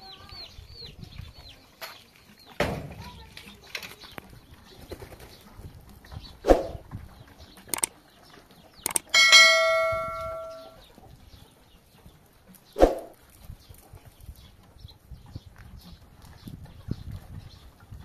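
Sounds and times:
metal clanging and ringing: 9.0 - 10.8.

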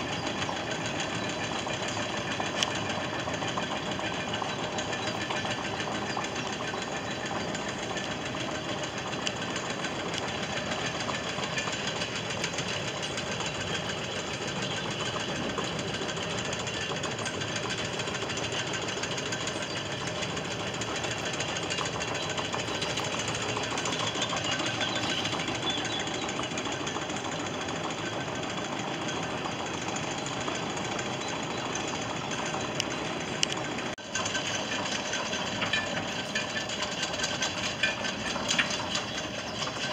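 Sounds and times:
chain machinery clattering: 0.0 - 39.9.

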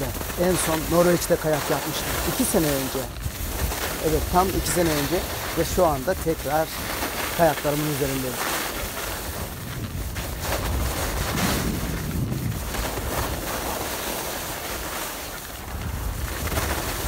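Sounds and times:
skis scraping over snow: 0.0 - 17.0
wind buffeting microphone: 0.0 - 17.0.

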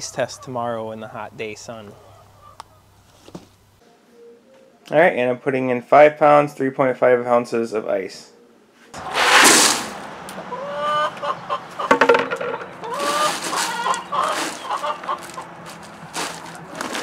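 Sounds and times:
chickens clucking: 0.0 - 3.0, 9.0 - 17.0
ice cubes rattling into cooler: 13.0 - 17.0.

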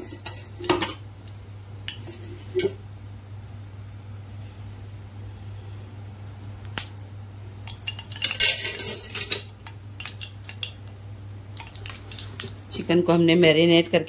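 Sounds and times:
steady low hum: 0.0 - 14.0
metal spoon clinking on a pan: 7.7 - 10.8.

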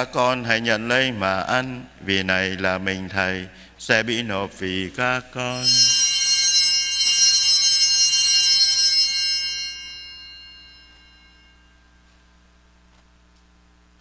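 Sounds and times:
small bells ringing: 5.5 - 12.2.

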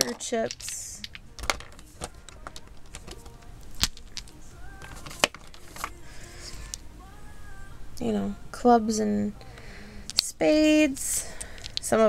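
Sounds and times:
poker chips clicking: 0.0 - 6.8, 10.0 - 10.3, 11.0 - 12.0.

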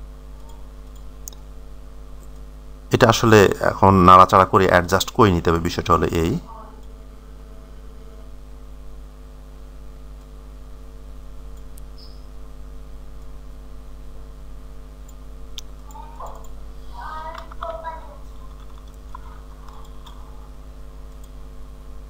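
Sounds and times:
steady low hum: 0.0 - 22.0
computer mouse clicks: 0.4 - 1.5, 18.4 - 20.2, 21.1 - 21.4.

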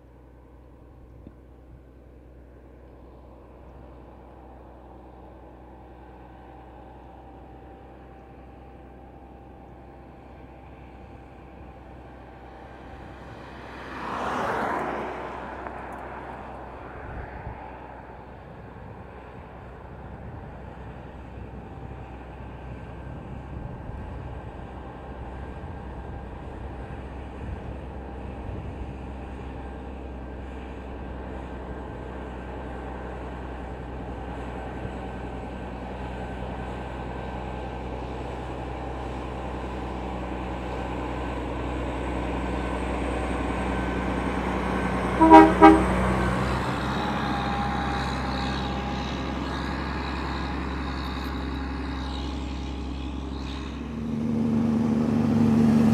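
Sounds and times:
diesel truck engine drone: 0.0 - 55.9.

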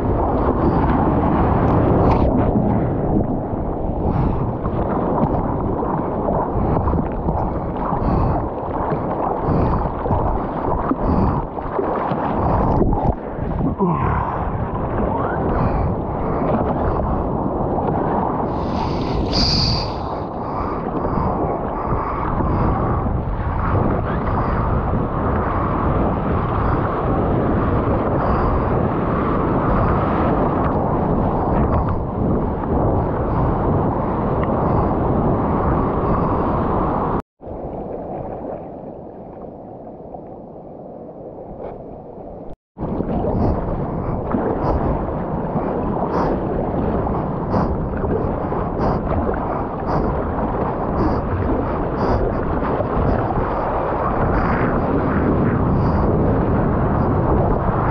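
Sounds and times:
wind buffeting microphone: 0.0 - 57.9
water sloshing and splashing: 4.0 - 22.2, 41.4 - 54.6.

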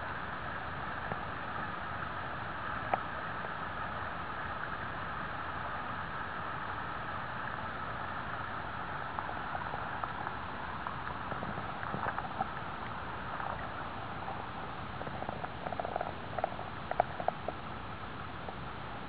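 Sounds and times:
river water running over rocks: 0.0 - 19.0
small ticks: 2.6 - 3.6, 9.0 - 17.7.

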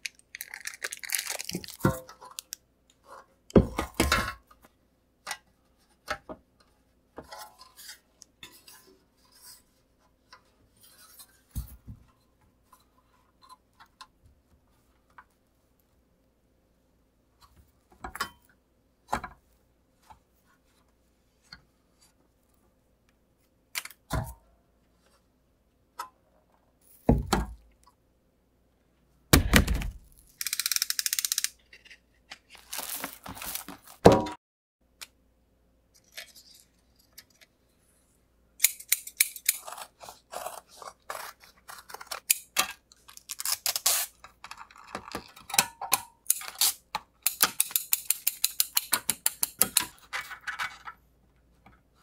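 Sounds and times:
backing paper rustling: 31.7 - 34.1.

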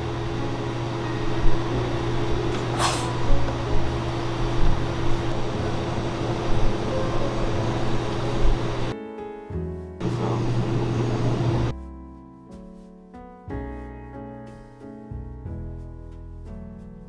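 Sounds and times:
steady machine hum: 0.0 - 9.0, 10.0 - 11.7.

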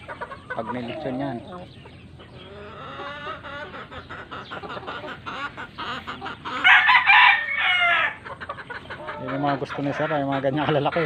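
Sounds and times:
chickens clucking: 0.0 - 11.0
rooster crowing: 6.6 - 8.2.

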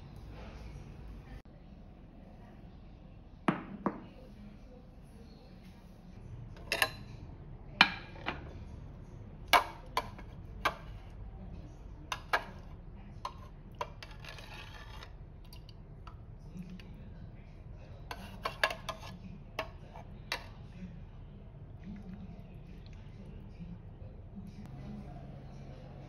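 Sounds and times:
metal ladle clinking on saucepan: 6.6 - 7.1
ladle scraping and broth sloshing: 13.3 - 15.8.

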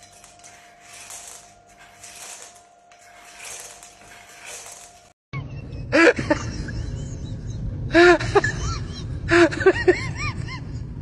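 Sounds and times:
low background rumble: 5.4 - 11.0.

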